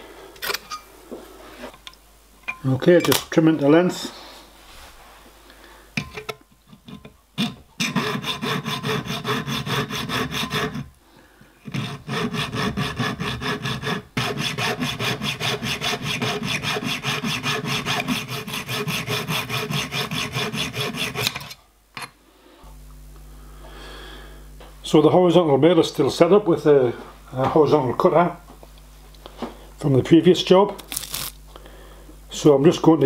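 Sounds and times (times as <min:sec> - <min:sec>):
hacksaw cutting metal strip: 0:07.4 - 0:10.9, 0:11.7 - 0:21.6.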